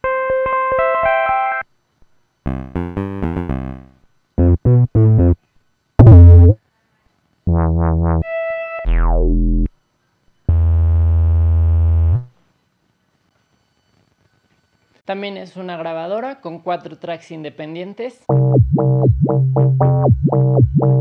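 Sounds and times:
synthesizer chords and notes: 2.5 - 5.4, 6.0 - 6.6, 7.5 - 9.7, 18.3 - 21.0
falling synth pitch glide: 8.1 - 9.7.

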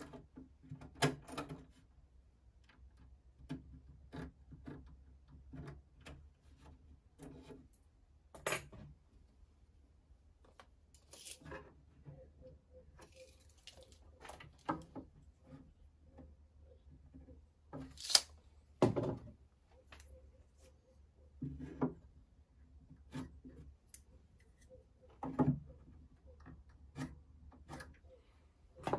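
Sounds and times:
tape measure clicks on wood: 17.9 - 18.3.

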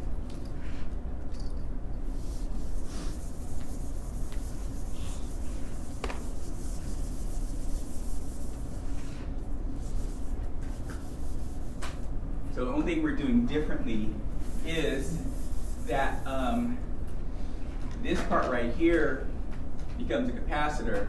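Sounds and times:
low room hum: 0.0 - 21.0
marker writing on a whiteboard: 9.8 - 12.0.

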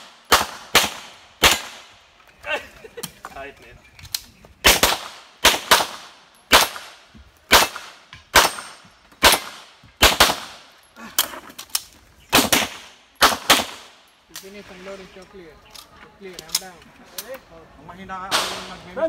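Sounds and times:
gunshots: 0.0 - 1.9, 4.6 - 10.7, 12.3 - 14.0, 18.3 - 18.9.

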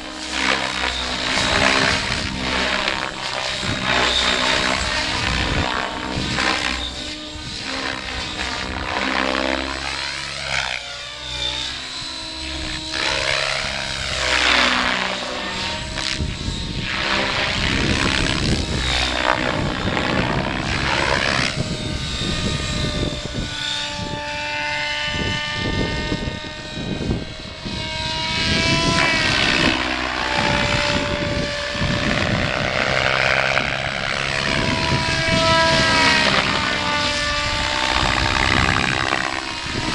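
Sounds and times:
helicopter rotor whir: 0.0 - 39.9
whine gliding in pitch: 0.0 - 39.9.

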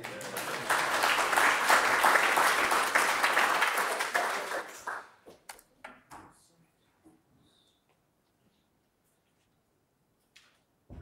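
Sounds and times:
audience applause: 0.0 - 5.2.

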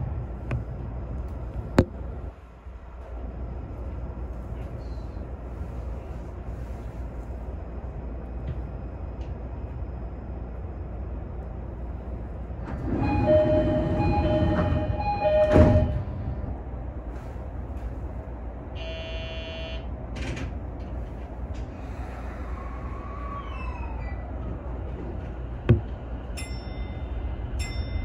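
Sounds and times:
train low rumble: 0.0 - 28.0
loud knock: 25.7 - 25.9.

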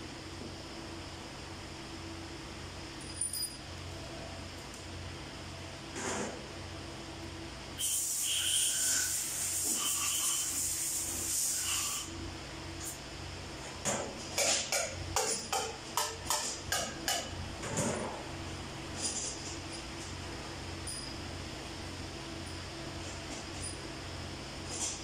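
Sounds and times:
steady hiss: 7.8 - 12.1.

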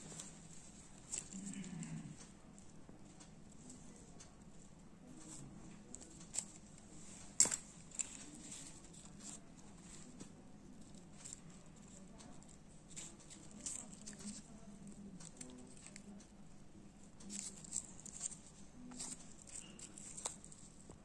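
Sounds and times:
plastic hair clips clicking: 17.2 - 20.8.

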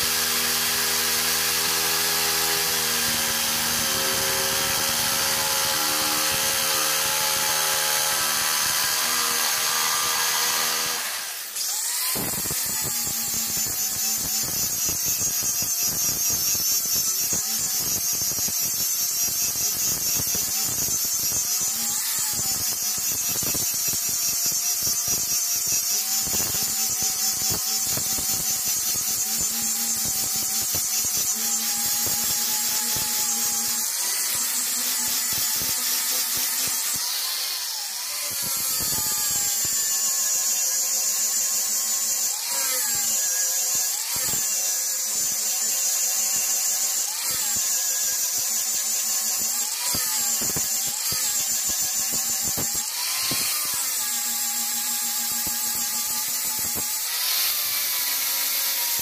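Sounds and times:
angle grinder grinding wood: 0.0 - 59.0
electric jigsaw cutting wood: 0.0 - 59.0.

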